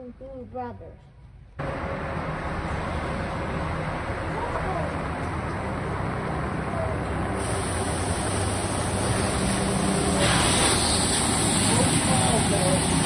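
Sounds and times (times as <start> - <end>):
ice resurfacer mechanical hum: 1.6 - 13.0
hiss: 7.3 - 13.0.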